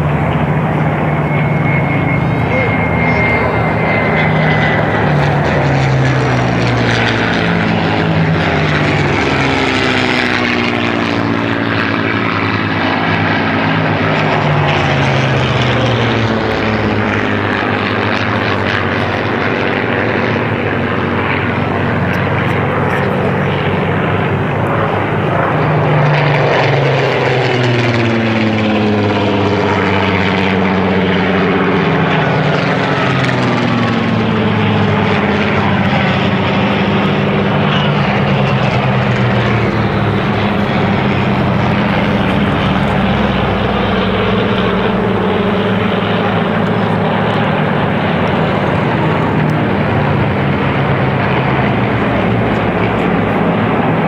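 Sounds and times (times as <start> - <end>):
propeller planes flying past: 0.0 - 54.0.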